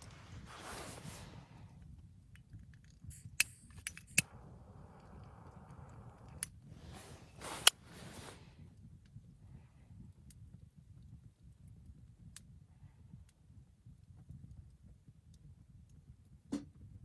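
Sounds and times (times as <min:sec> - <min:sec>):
handling rustle: 0:00.0 - 0:01.6, 0:06.7 - 0:08.5
flame hissing: 0:00.0 - 0:02.2, 0:03.1 - 0:10.0
torch lighter clicking: 0:03.2 - 0:04.3.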